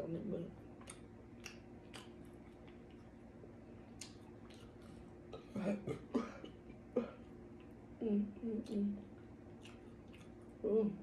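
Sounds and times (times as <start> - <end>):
faint steady hum: 0.0 - 11.0
mouth smacking and chewing: 0.8 - 3.2, 3.8 - 5.4, 8.6 - 10.6.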